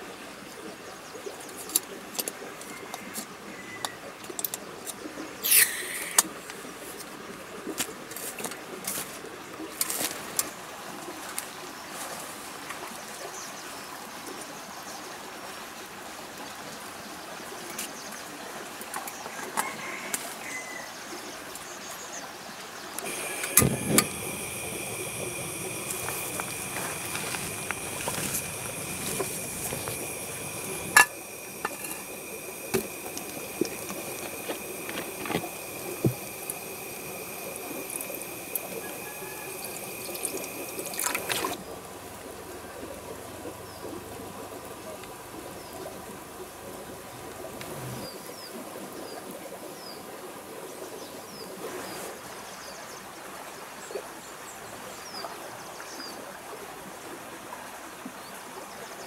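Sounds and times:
water hissing as bubbles form: 5.4s - 6.2s, 23.0s - 41.6s
faint high chirps: 23.0s - 41.4s
steady high whine: 23.0s - 41.6s.

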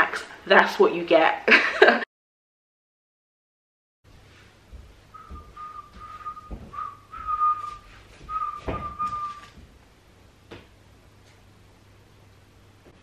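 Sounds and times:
dull thumps: 4.6s - 9.8s
person whistling: 5.1s - 9.6s.

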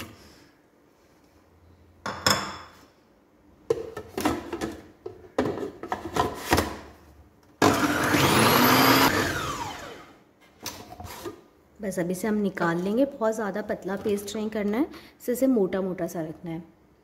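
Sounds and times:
food processor motor whining: 7.6s - 10.2s.

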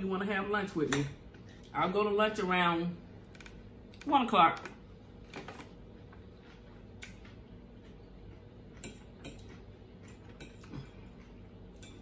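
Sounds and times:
low steady background hum: 0.0s - 12.0s
fork clicking and scraping on plate: 8.7s - 12.0s.

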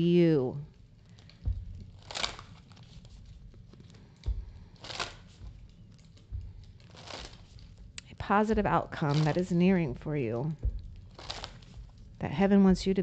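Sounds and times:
low bump: 1.4s - 13.0s
cards swishing when shuffled: 1.8s - 7.8s, 9.0s - 9.6s, 11.0s - 12.0s.

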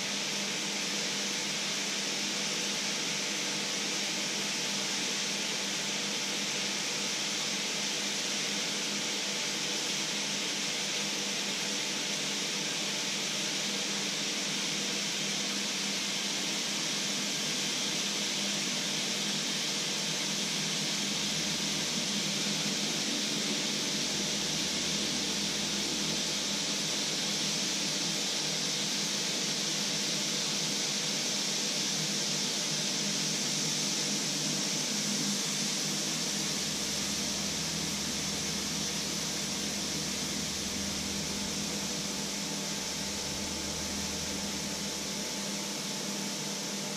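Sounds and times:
low hum: 36.0s - 45.4s.

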